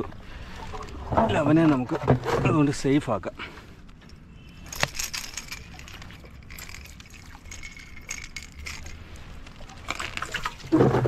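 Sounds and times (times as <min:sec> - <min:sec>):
water splashing and trickling: 0:04.6 - 0:11.0.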